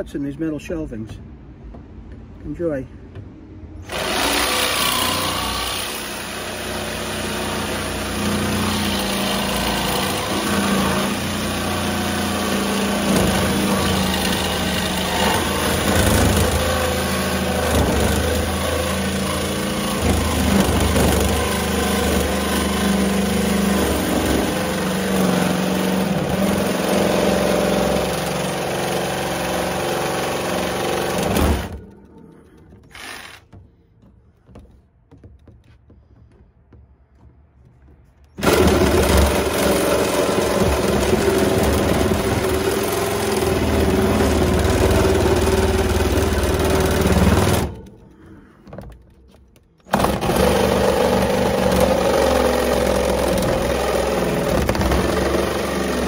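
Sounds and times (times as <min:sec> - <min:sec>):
jigsaw cutting metal: 0:03.9 - 0:32.0, 0:32.8 - 0:33.5, 0:38.4 - 0:48.0, 0:49.8 - 0:56.0.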